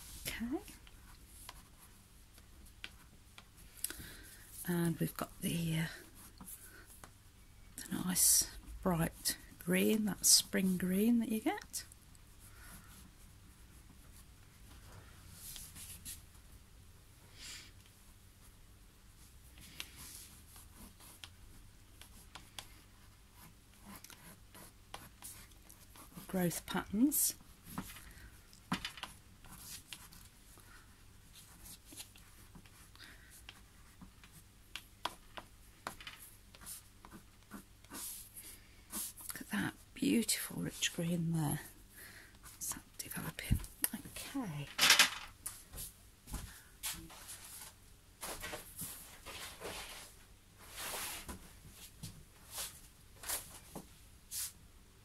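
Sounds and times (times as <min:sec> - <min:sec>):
crayon scratching on paper: 0:19.7 - 0:21.4, 0:22.0 - 0:28.3, 0:29.0 - 0:30.3, 0:36.2 - 0:38.3, 0:38.9 - 0:40.1.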